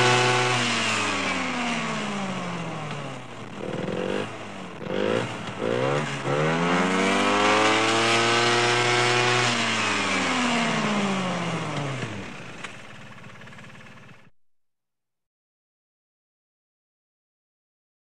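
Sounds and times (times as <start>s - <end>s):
engine revving past: 0.0s - 2.6s, 3.6s - 12.4s.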